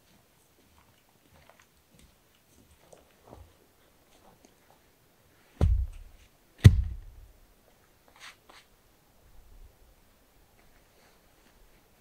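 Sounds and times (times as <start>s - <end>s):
log thudding on forest floor: 5.6s - 7.2s.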